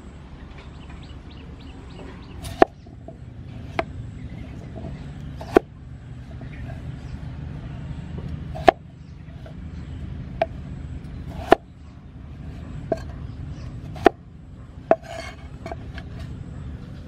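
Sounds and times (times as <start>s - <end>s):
cleaver chopping on wooden block: 2.4s - 2.8s, 5.4s - 5.7s, 8.6s - 8.8s, 11.3s - 11.7s, 13.8s - 14.2s.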